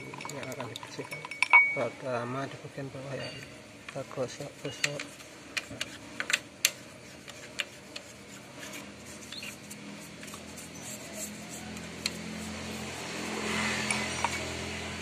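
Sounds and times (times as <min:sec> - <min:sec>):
brush scrubbing steel tubing: 0:06.7 - 0:14.6.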